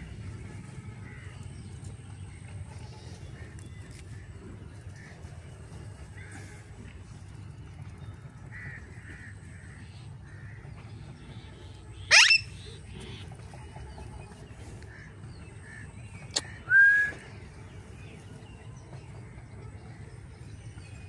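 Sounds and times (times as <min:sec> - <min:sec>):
parakeet squawking: 0:12.1 - 0:12.7.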